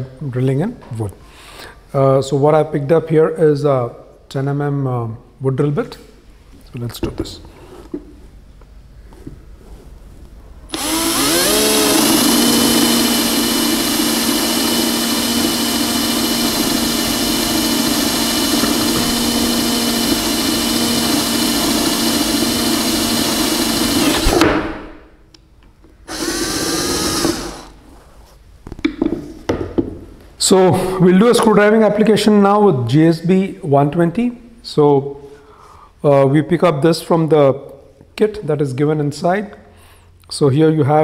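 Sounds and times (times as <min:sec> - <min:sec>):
cordless drill motor whine: 0:10.7 - 0:24.3, 0:26.1 - 0:27.8.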